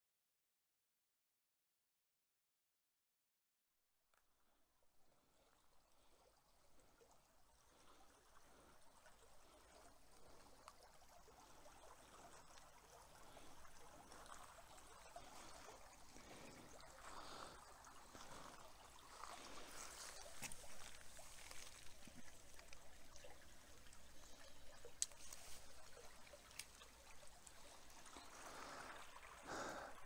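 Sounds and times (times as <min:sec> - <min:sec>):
creek trickling: 0:04.9 - 0:30.0
wet gravel crunching: 0:16.2 - 0:22.8.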